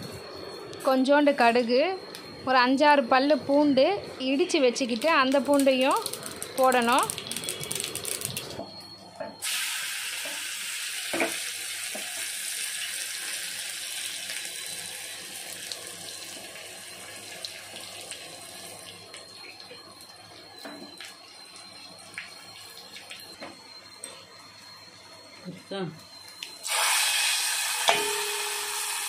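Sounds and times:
garlic sizzling in hot oil: 4.8 - 8.5, 9.4 - 18.8, 26.6 - 29.0.

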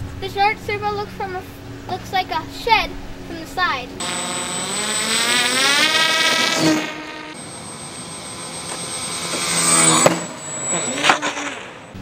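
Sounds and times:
model plane motor whining: 4.0 - 12.0.

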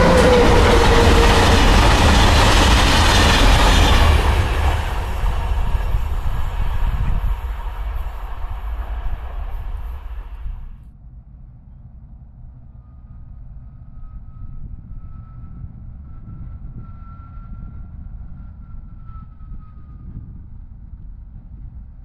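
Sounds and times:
diesel locomotive rumbling: 0.0 - 10.8
faint whine: 0.0 - 11.2.

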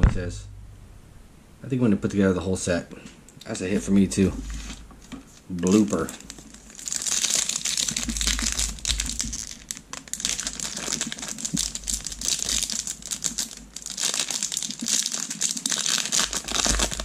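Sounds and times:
foil wrapper crinkling: 4.5 - 17.0.

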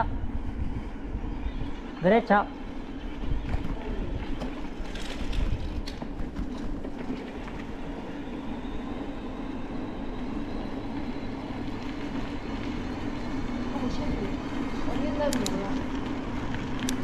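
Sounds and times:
tyres and wind rumble: 0.0 - 17.0
bike clicks and rattles: 3.3 - 8.1, 14.6 - 17.0.

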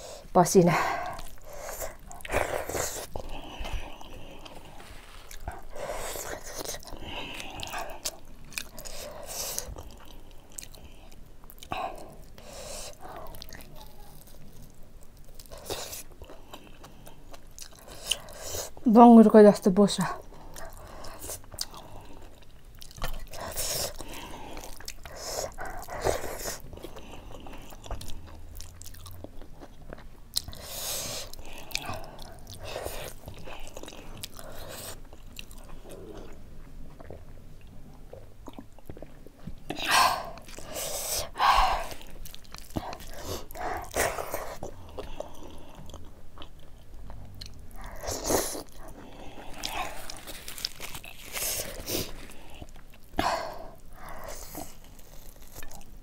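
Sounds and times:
close chewing with wet smacks: 1.0 - 18.8, 20.2 - 56.0.

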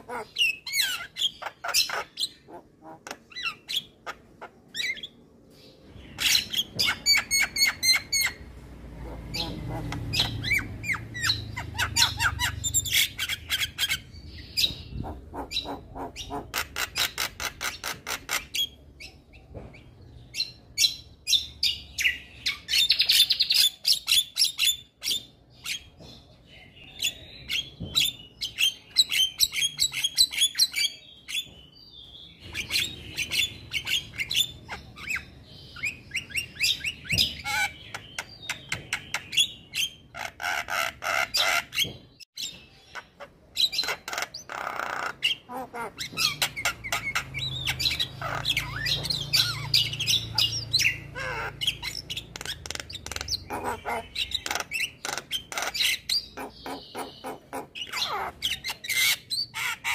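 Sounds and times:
bird singing with clicks and squawks: 0.0 - 59.9.

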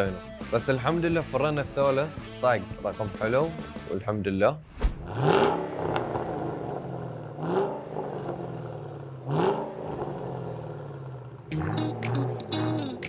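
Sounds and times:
car engine revving: 5.0 - 13.0.

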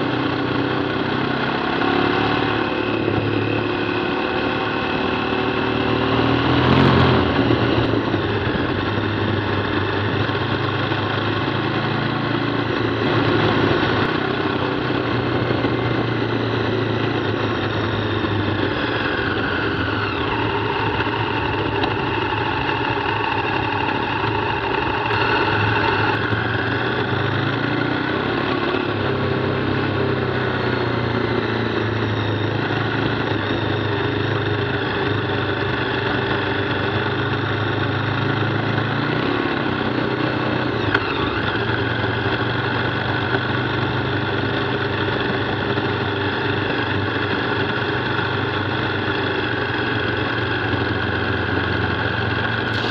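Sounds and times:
motorcycle engine running: 0.0 - 52.9
wind noise: 6.3 - 10.2.

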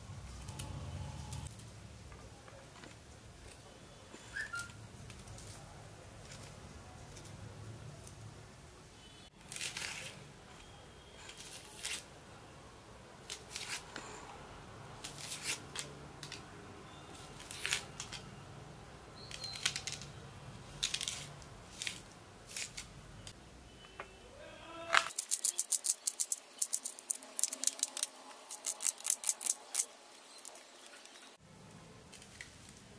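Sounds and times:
onion skin crackling: 9.4 - 10.2, 11.2 - 12.1, 13.2 - 14.0, 15.0 - 16.5, 17.1 - 18.2, 19.2 - 23.4, 24.9 - 31.4
knife scraping garlic: 20.8 - 22.9, 25.1 - 31.2.

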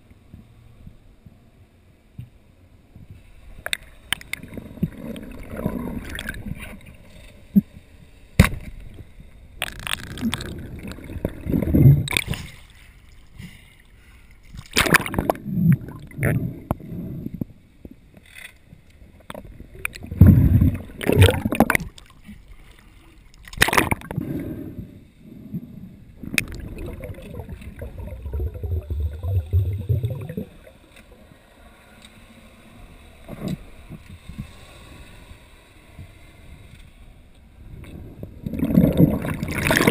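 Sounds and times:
underwater water swishes: 3.0 - 39.9
low rumble: 24.8 - 31.3.

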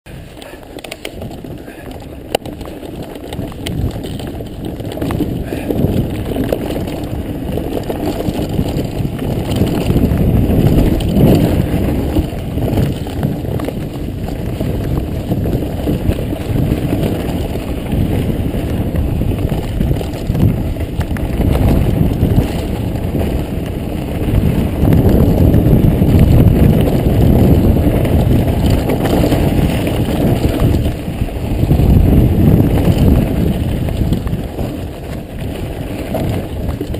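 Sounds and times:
bike knocks and rattles: 0.1 - 36.9
bike tyres rumbling over dirt: 0.1 - 36.9.

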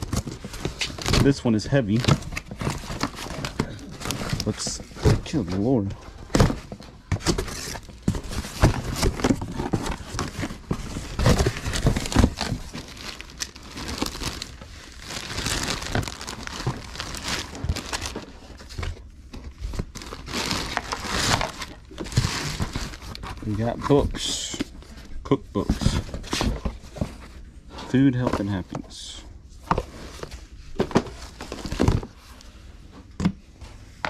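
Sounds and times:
packing material crinkling: 6.4 - 18.7, 19.6 - 24.3.

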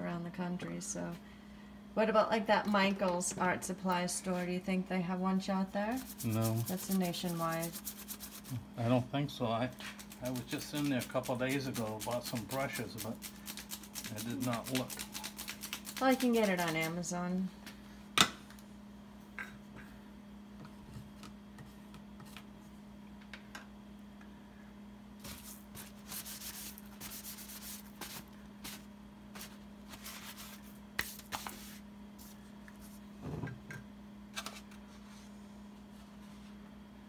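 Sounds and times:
steady low hum: 0.0 - 37.0
paper towel rubbing: 5.9 - 8.6, 9.9 - 17.0, 25.2 - 32.4
stir stick in paint can: 6.0 - 8.5.

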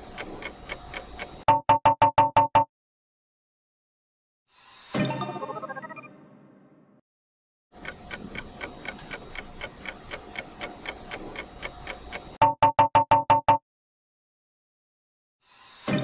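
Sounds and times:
clock-like ticking: 0.0 - 2.6, 7.7 - 13.6.

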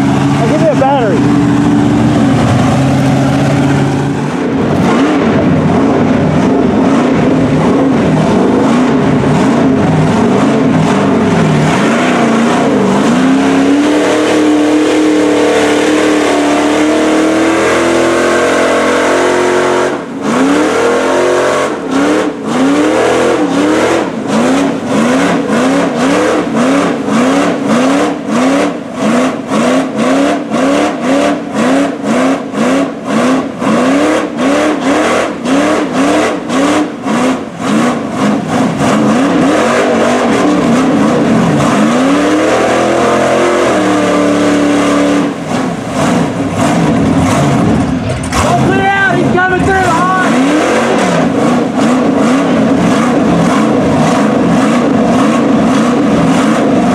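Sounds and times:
truck engine revving: 0.0 - 56.9.

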